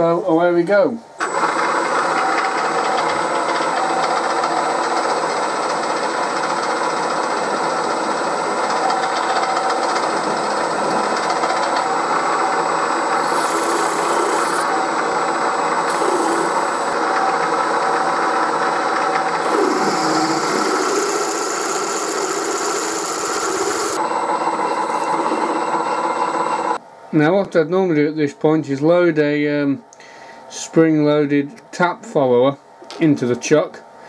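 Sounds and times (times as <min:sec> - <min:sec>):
milling machine drilling metal: 0:01.2 - 0:17.4, 0:19.4 - 0:26.8.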